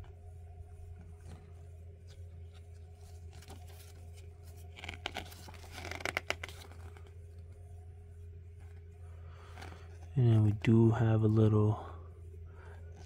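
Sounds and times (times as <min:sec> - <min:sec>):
faint low hum: 0:00.0 - 0:13.0
paper pages rustling: 0:00.9 - 0:07.5.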